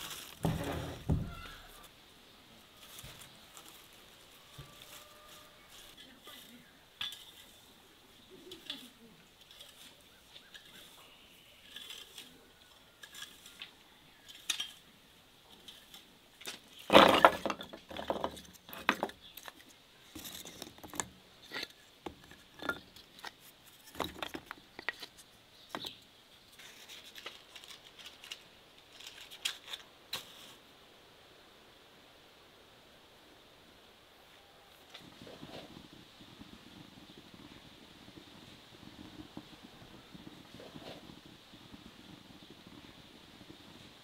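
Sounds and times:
wooden sticks clattering on table: 15.6 - 25.2.

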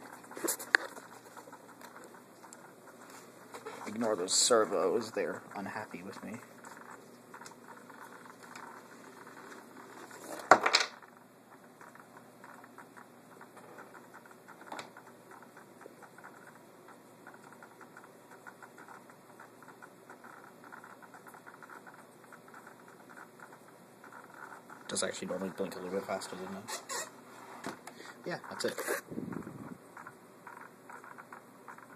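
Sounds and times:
faint irregular servo ticking: 11.5 - 26.7, 27.8 - 31.9.

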